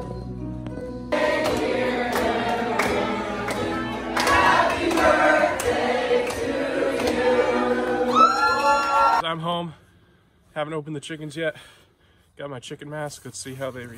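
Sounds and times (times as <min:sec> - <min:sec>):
choir singing: 0:01.1 - 0:09.2.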